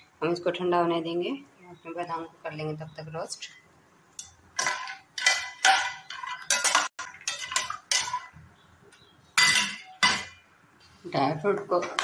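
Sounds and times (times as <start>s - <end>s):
steel spoon scraping a pan: 4.2s - 8.4s.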